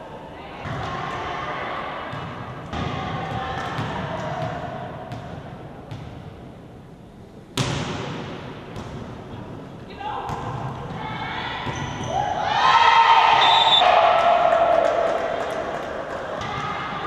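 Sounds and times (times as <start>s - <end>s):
sports hall background noise: 0.0s - 17.0s
volleyball serve smack: 7.6s - 9.0s.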